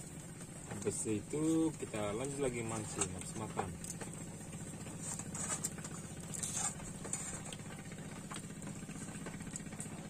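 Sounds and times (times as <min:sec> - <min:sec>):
small engine running: 0:00.0 - 0:10.0.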